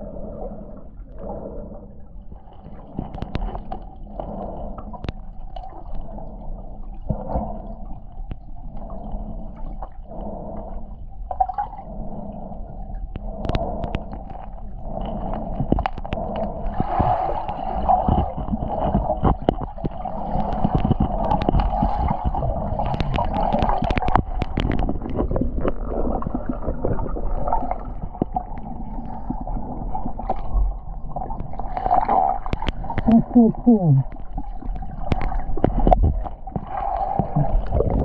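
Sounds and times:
muffled underwater rush: 0.0s - 38.0s
sharp clicks and crackles: 2.9s - 4.0s, 13.0s - 29.3s, 30.2s - 33.2s, 34.0s - 38.0s.

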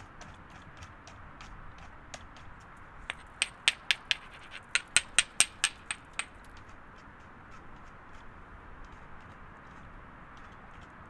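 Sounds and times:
quick sharp taps and clicks: 3.1s - 6.7s.

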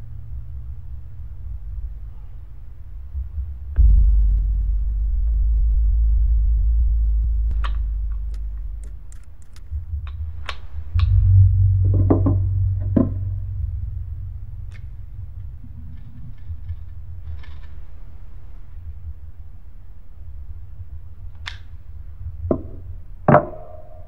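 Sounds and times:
deep rumbling drone: 0.0s - 23.3s.

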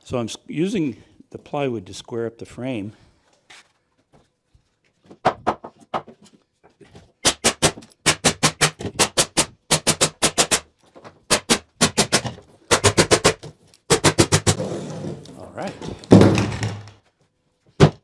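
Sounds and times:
nail gun firing: 7.2s - 10.7s, 11.3s - 14.6s.

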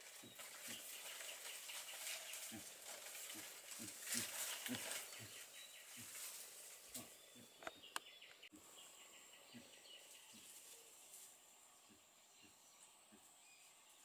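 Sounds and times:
pig grunting: 2.4s - 5.4s.

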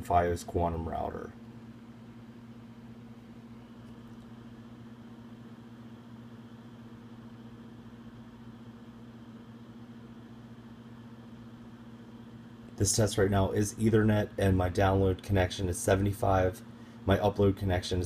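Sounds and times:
faint high-pitched whine: 0.0s - 18.0s
low room noise hum: 0.0s - 18.0s.

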